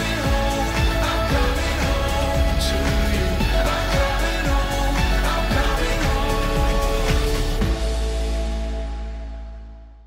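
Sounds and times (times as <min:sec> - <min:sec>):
pop music with steady beat: 0:00.0 - 0:09.4.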